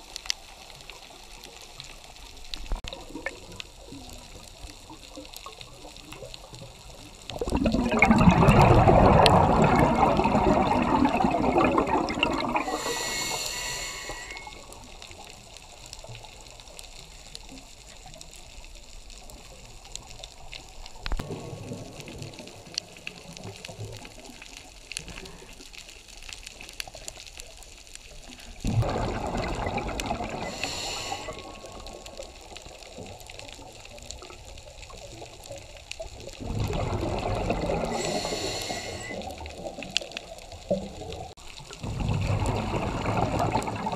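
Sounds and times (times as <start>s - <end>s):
exhaled bubbles underwater: 0.0s - 25.8s, 26.5s - 43.9s
regulator inhalation hiss: 12.6s - 14.7s, 30.4s - 31.7s, 37.8s - 39.4s.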